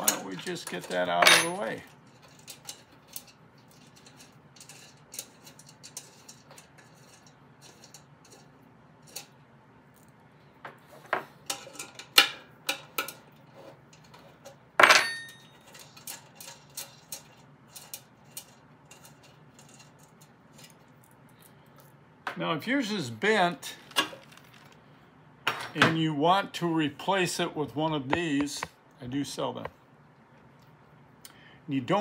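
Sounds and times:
ringing metal clank: 14.8s - 15.5s.

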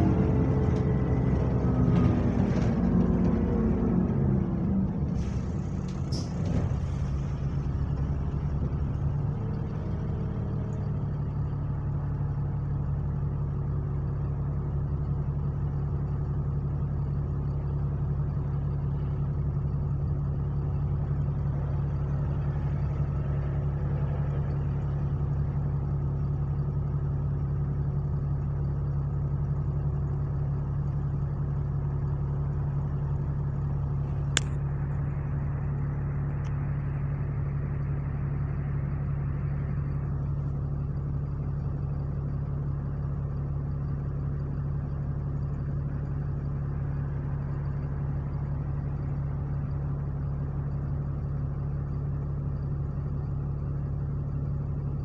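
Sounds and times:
bus engine droning: 0.0s - 55.0s
sharp click: 34.2s - 34.7s.

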